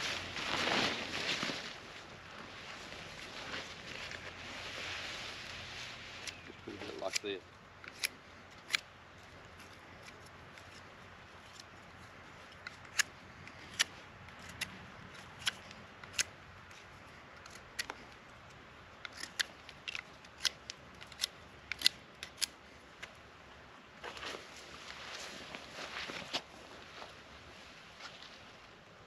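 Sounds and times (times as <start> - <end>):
knife shaving wood: 19.0 - 22.5.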